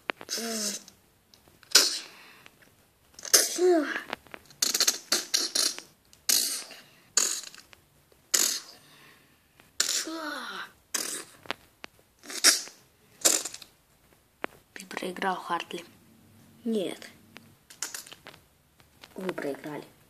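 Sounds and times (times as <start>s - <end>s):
mouth-made hissing bursts: 0.3s - 1.0s, 1.7s - 2.3s, 4.6s - 7.6s, 8.3s - 8.9s, 9.8s - 11.4s, 12.2s - 13.7s.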